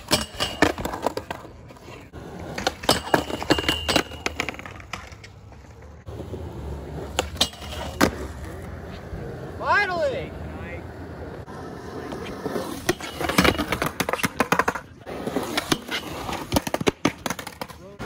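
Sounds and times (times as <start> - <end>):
skateboard clacking on concrete: 0.0 - 6.0, 12.0 - 17.9.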